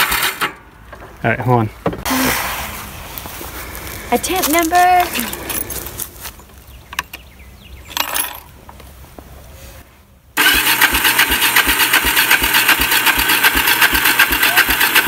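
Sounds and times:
engine starter cranking: 0.0 - 0.6, 10.4 - 15.0.

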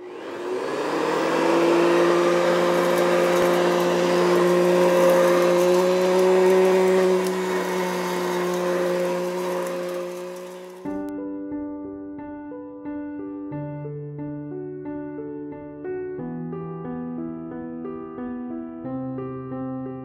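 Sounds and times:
handheld vacuum cleaner running: 0.0 - 11.1.

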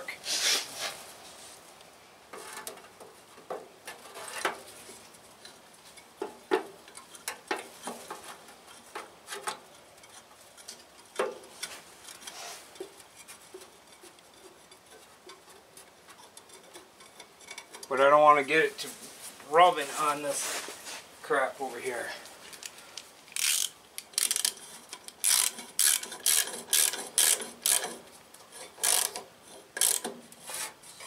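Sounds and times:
wire mesh screen clicking and rattling: 22.5 - 30.2.

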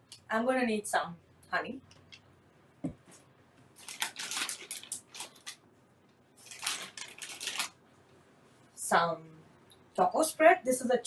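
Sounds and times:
soft thump: 2.8 - 3.2.

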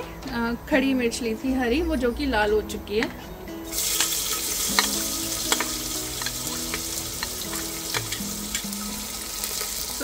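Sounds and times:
onions sizzling in hot oil: 3.7 - 10.0
steel spoon clicking and scraping: 3.8 - 8.9.

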